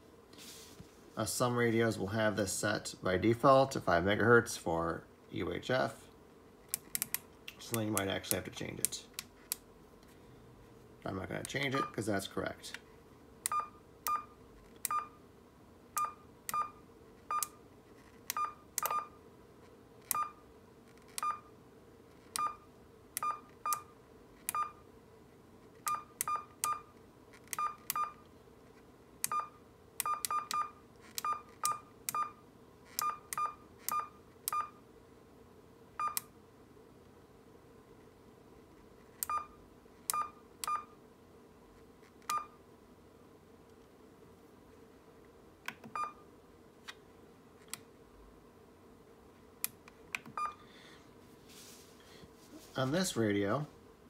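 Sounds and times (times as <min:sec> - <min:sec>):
key-press beeps: 0:11.7 - 0:11.9, 0:13.5 - 0:15.2, 0:16.0 - 0:17.6, 0:18.3 - 0:19.1, 0:20.1 - 0:20.4, 0:21.2 - 0:21.5, 0:22.3 - 0:22.6, 0:23.2 - 0:23.9, 0:24.5 - 0:24.8, 0:25.8 - 0:26.9, 0:27.5 - 0:28.2, 0:29.2 - 0:32.4, 0:33.0 - 0:34.8, 0:36.0 - 0:36.3, 0:39.2 - 0:40.9, 0:42.3 - 0:42.6, 0:45.7 - 0:46.2, 0:50.2 - 0:50.6.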